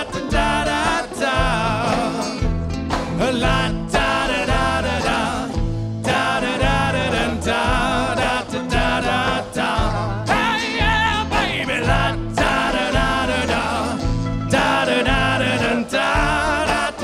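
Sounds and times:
person singing: 0.0 - 2.5, 3.1 - 17.0
bass line: 0.0 - 17.0
folk band playing: 0.0 - 17.0.

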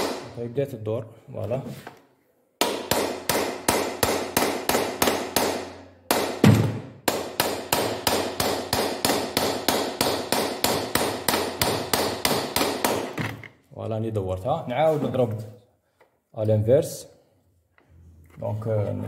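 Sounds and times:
hammer striking wooden block: 0.0 - 0.4, 2.6 - 13.5.

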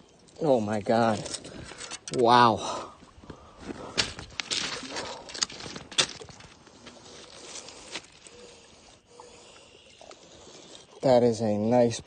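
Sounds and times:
footsteps on rocks and gravel: 3.0 - 8.1.

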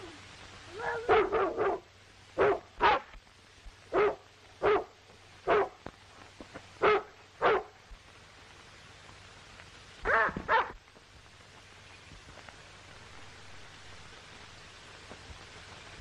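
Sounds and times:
dog barking: 0.7 - 3.1, 3.9 - 5.8, 6.8 - 7.8, 10.0 - 10.8.

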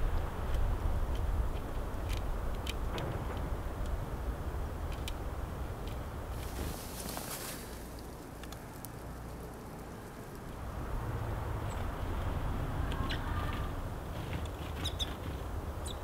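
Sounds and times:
low rumble: 0.0 - 7.0
sparrows chirping: 14.6 - 16.0.

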